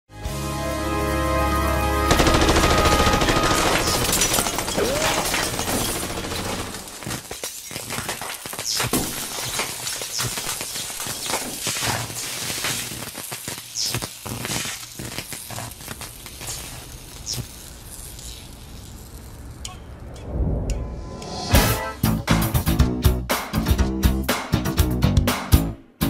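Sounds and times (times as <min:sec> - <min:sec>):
held music chord: 0:00.2 - 0:03.8
rapid sharp cracks and pops: 0:02.4 - 0:19.3
glass breaking: 0:02.6 - 0:13.0.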